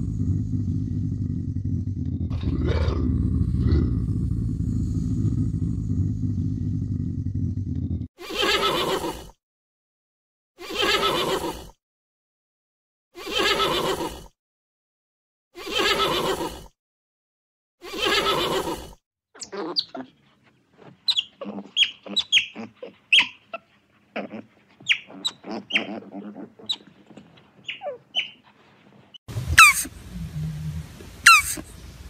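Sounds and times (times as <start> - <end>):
animal call: 10.6 - 11.6, 13.2 - 14.2, 15.6 - 16.6, 17.8 - 20.2, 21.0 - 26.9, 29.4 - 31.7.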